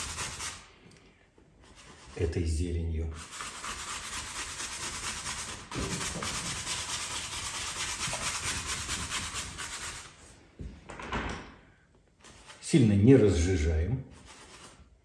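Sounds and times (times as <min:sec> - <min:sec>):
bristle brush scrubbing canvas: 0:00.0 - 0:00.7, 0:01.6 - 0:02.4, 0:03.2 - 0:10.4, 0:14.1 - 0:15.0.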